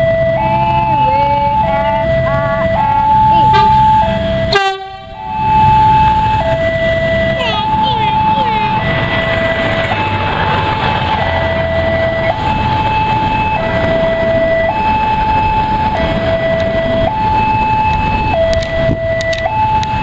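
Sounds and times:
level crossing two-tone alarm: 0.0s - 20.0s
railbus rumbling past: 0.0s - 20.0s
sharp clicks: 17.9s - 20.0s.

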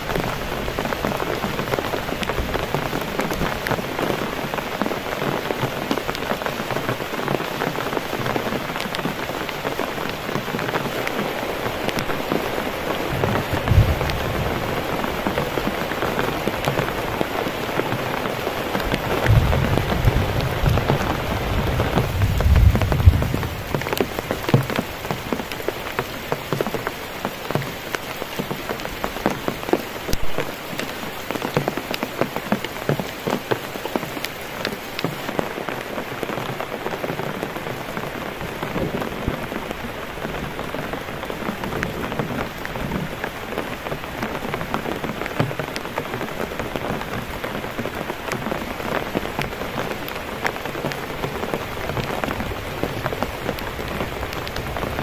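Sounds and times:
heavy rain on plastic tarp: 0.0s - 55.0s
low thunder rumbling: 12.9s - 16.1s, 18.8s - 25.0s.

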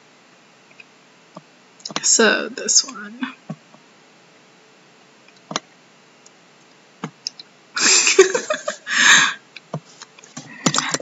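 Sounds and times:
breathy laugh: 7.8s - 9.4s.

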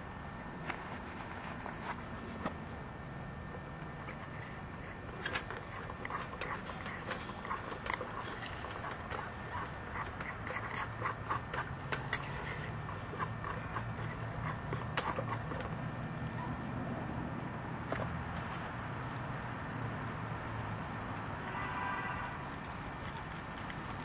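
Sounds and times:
camp stove low rumble: 0.7s - 15.9s.

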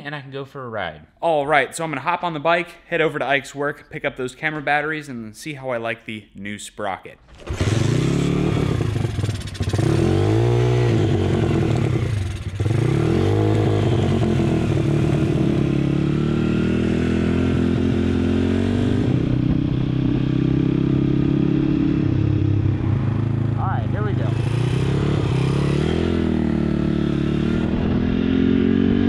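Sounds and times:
mini bike engine pulling away: 7.4s - 29.0s.

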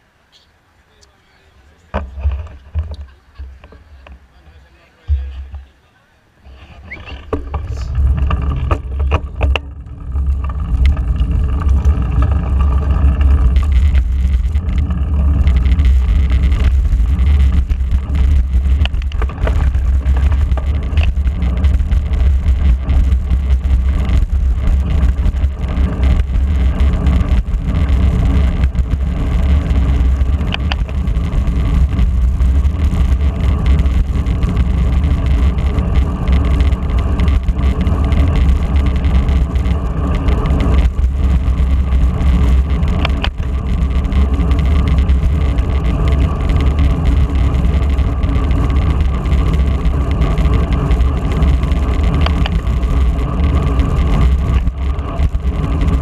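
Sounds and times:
wind rumbling on microphone: 6.4s - 56.0s
sharp clicks: 10.3s - 49.9s.

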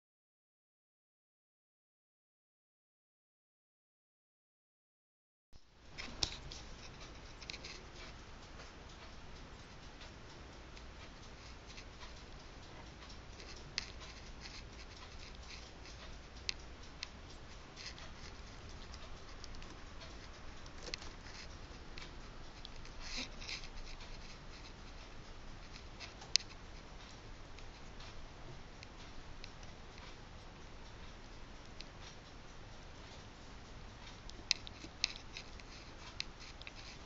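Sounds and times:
kitten paws tapping keyboard: 6.0s - 25.0s.

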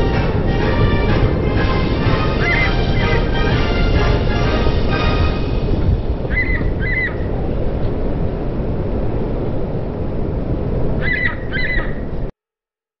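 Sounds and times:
bird calling: 1.7s - 4.6s, 6.2s - 7.5s, 11.0s - 12.2s.

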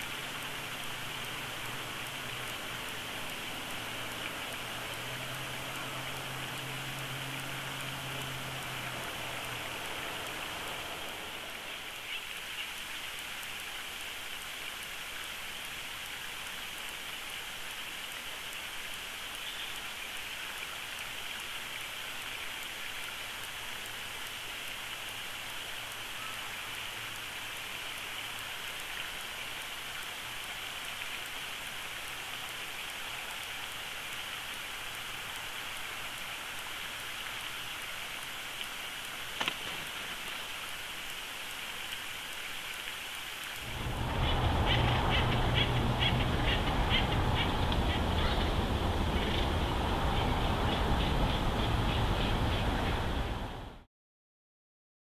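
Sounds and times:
outdoor hiss: 0.0s - 53.9s
low hum: 43.6s - 53.8s.

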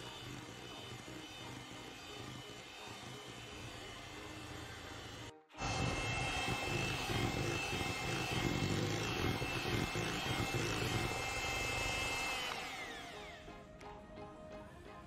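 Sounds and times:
electric hand mixer running: 0.0s - 13.7s.

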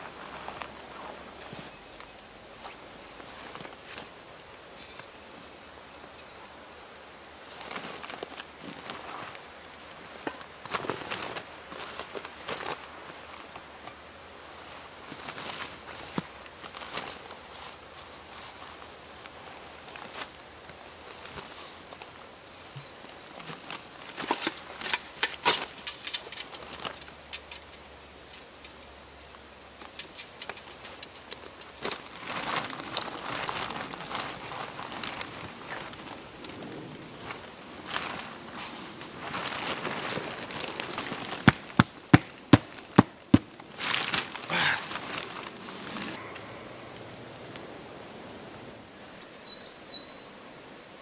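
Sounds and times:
fabric clothing rustling: 7.4s - 13.8s, 14.5s - 22.2s, 30.2s - 48.3s
small clicks and knocks: 24.2s - 32.0s
fabric bag rustling: 31.8s - 46.4s.

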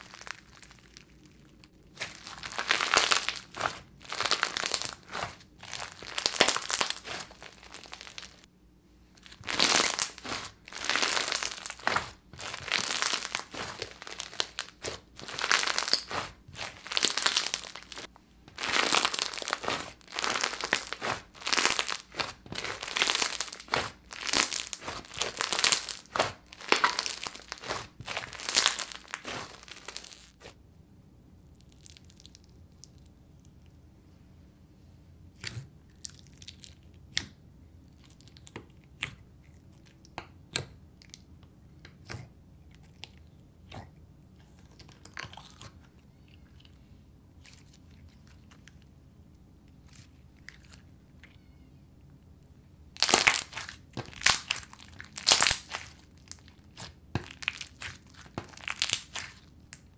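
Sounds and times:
crunchy slime crackling: 0.0s - 8.5s, 9.2s - 30.6s, 31.4s - 33.2s, 52.9s - 59.9s.

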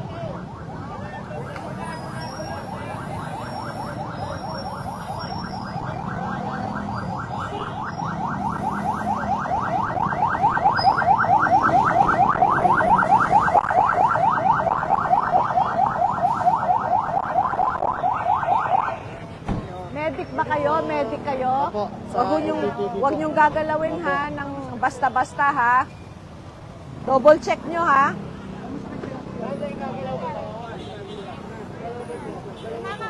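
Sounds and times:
emergency siren yelping: 0.0s - 19.2s.

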